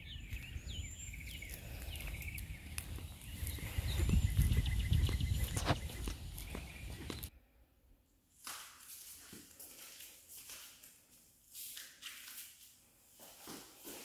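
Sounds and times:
camera rustling: 4.0 - 7.3.

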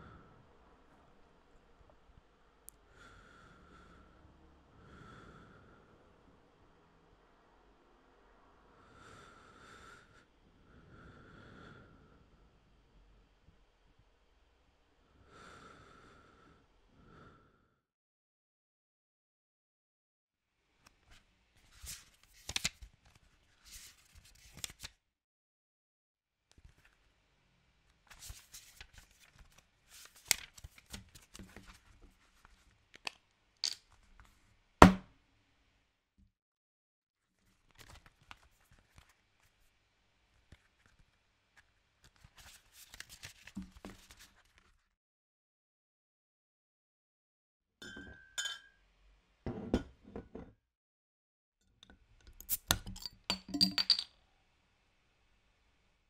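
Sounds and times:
paper rustling: 21.7 - 24.9, 28.1 - 32.7, 37.4 - 39.6, 40.5 - 44.8
pages flicking: 21.8 - 24.9, 28.1 - 31.8, 42.0 - 44.7
glass bottles clinking: 47.8 - 48.8, 52.8 - 54.1.

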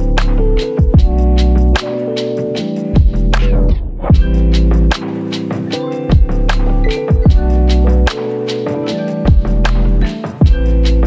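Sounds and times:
synthesizer chords over beat: 0.0 - 11.0
deep kick drum: 0.8 - 1.4, 3.0 - 5.0, 6.1 - 8.2, 9.3 - 9.7, 10.4 - 11.0.

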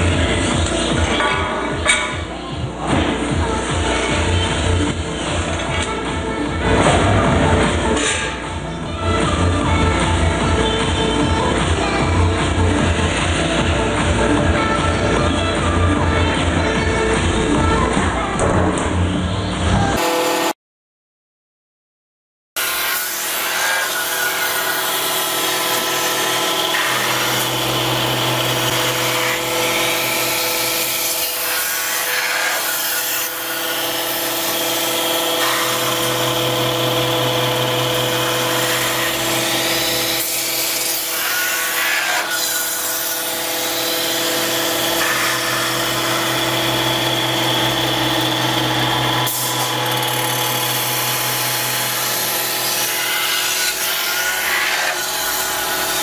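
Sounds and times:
metal-spinning lathe humming: 24.9 - 31.1, 33.6 - 40.8, 43.2 - 52.9.

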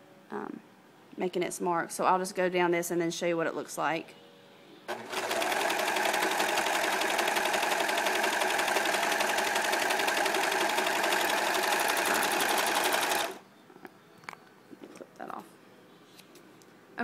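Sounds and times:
overlock sewing machine whirring: 4.9 - 13.4.

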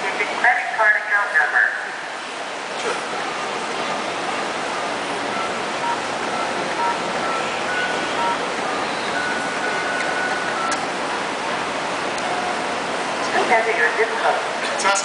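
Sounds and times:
phone keypad beeps: 5.3 - 10.8.

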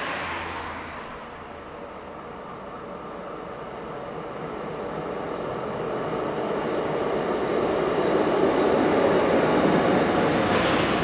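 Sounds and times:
passenger train passing: 0.0 - 11.0.

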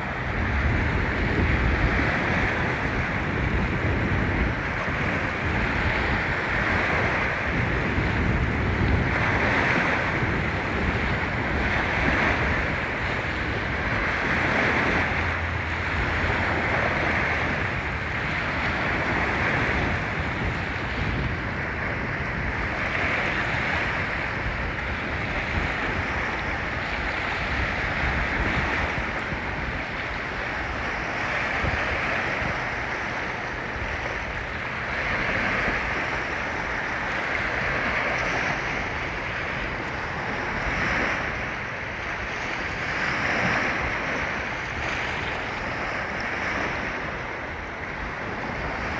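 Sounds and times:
waves breaking on shoreline: 0.0 - 48.9
wind rumbling on microphone: 0.0 - 48.9.

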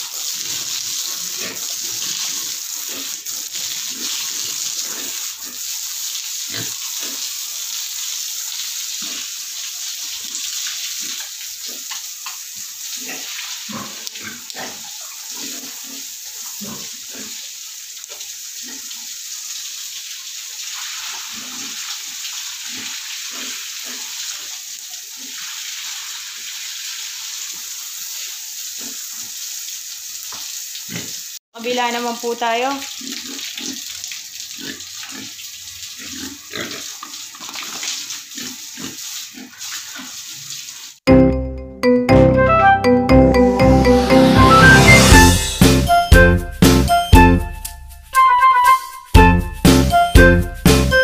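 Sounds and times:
hose spraying on concrete: 0.0 - 41.0
pigs grunting: 13.0 - 17.4, 36.0 - 37.0, 38.4 - 40.2.

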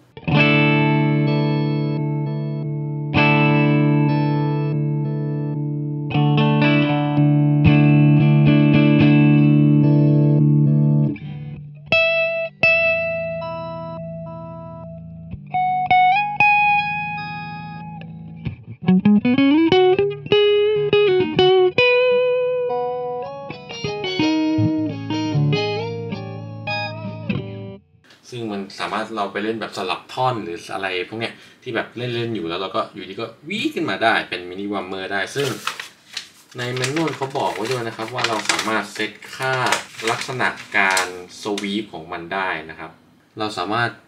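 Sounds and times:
electric guitar with harmonizer: 0.0 - 27.9
guitar pitch sweeping upward: 0.2 - 27.8.

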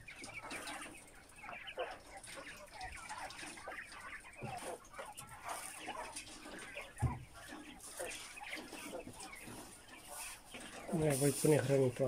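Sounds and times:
quail chirping calls: 0.0 - 12.0.

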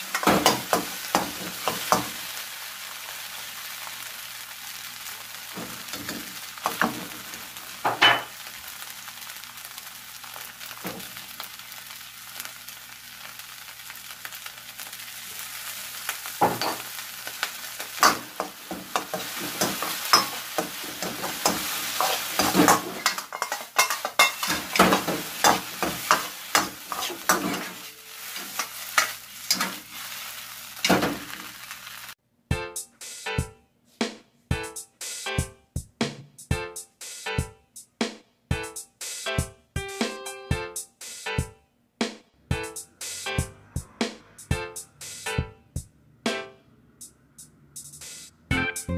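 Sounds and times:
rice sizzling in wok: 0.0 - 32.2
ladle clacking on wok: 18.0 - 29.8.

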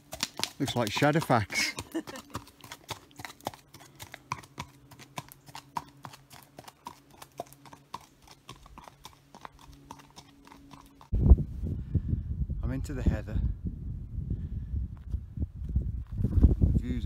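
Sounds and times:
horse hooves clip-clopping on gravel: 0.0 - 11.1.

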